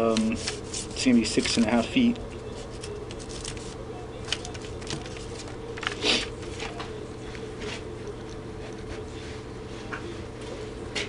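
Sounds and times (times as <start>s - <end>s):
steady low hum: 0.0s - 11.0s
paper rustling: 0.1s - 7.9s.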